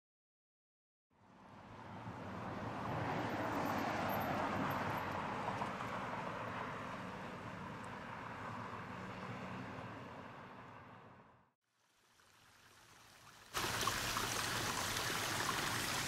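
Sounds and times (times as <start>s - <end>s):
passing road traffic: 1.2s - 11.6s.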